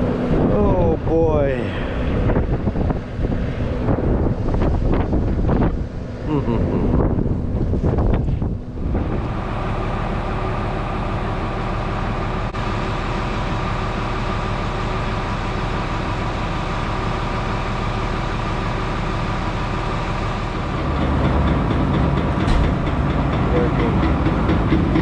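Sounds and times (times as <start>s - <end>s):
tractor diesel engine idling: 7.1s - 25.0s.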